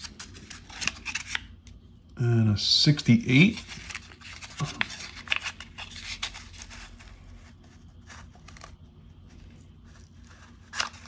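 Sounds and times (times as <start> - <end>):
paper wrapper tearing and crinkling: 9.4 - 11.0.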